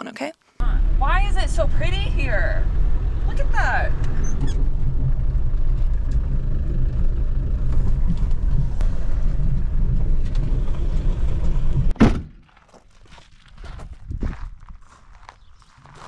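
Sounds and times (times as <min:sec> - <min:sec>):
engine and road rumble: 0:00.6 - 0:16.0
car door shutting: 0:11.8 - 0:12.4.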